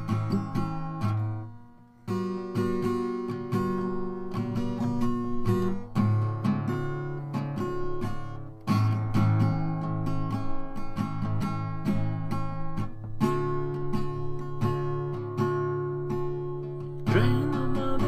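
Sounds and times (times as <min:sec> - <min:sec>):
acoustic guitar strumming chords: 0:00.0 - 0:18.0.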